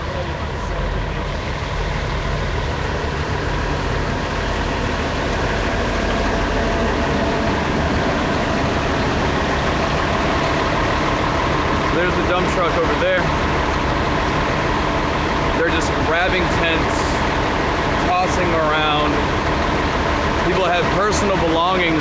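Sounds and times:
heavy machinery engine rumbling: 0:00.0 - 0:22.0.

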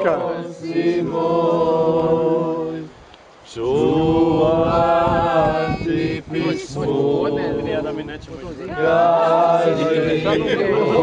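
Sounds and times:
men singing a cappella in harmony: 0:00.0 - 0:11.0.

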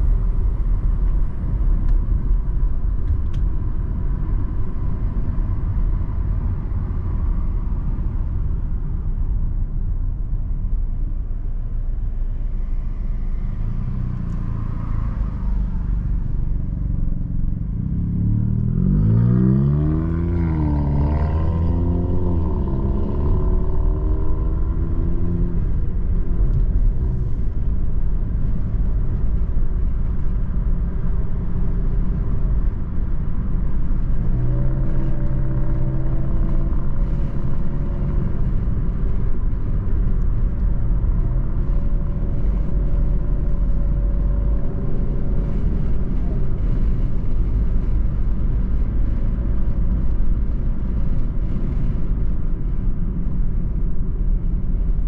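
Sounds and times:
engine and tyres rumbling: 0:00.0 - 0:55.0
car engine accelerating: 0:11.0 - 0:55.0.

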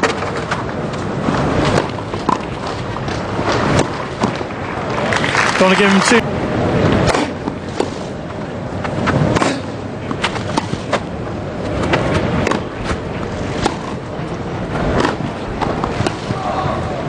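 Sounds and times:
tennis ball bouncing: 0:01.6 - 0:02.8, 0:03.6 - 0:04.5, 0:08.8 - 0:14.1, 0:14.9 - 0:16.4
tennis racket striking ball: 0:09.1 - 0:11.1, 0:11.8 - 0:13.0, 0:13.6 - 0:14.0, 0:14.9 - 0:16.4
crowd murmur: 0:15.2 - 0:17.0.

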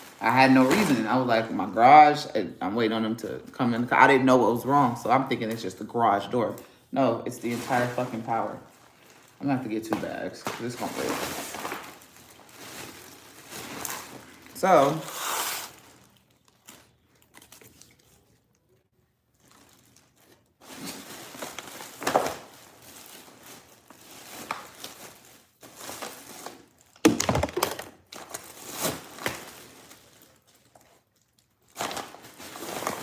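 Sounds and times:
plastic bags rustling: 0:00.0 - 0:02.3, 0:04.6 - 0:18.0, 0:19.3 - 0:33.0
packages thudding: 0:09.2 - 0:15.0, 0:20.6 - 0:30.2, 0:31.7 - 0:33.0.

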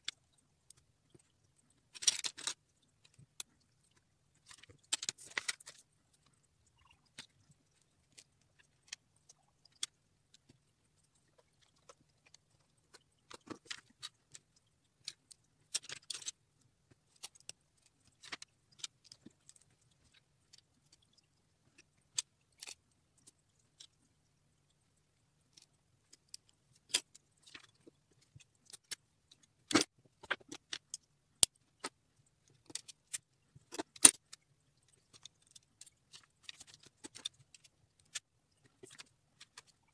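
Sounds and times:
plastic bricks clicking and rattling: 0:01.8 - 0:03.5, 0:04.4 - 0:05.8, 0:11.3 - 0:24.0.

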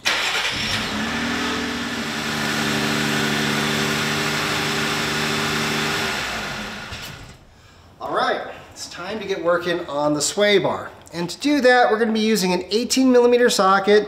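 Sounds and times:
car engine idling: 0:00.0 - 0:07.4.

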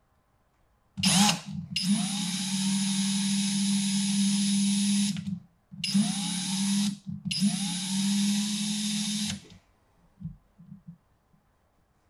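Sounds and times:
cordless drill driving screws: 0:01.0 - 0:09.6.

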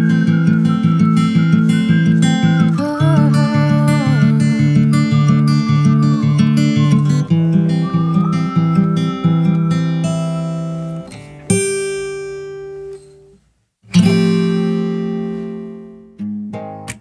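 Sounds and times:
acoustic guitar strummed chords: 0:00.0 - 0:17.0.

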